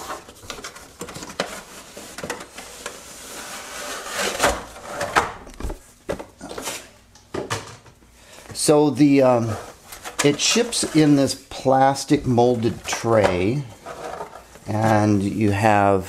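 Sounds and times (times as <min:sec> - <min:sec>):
cardboard and plastic scraping: 0:00.0 - 0:06.9, 0:09.4 - 0:11.4, 0:12.2 - 0:15.4.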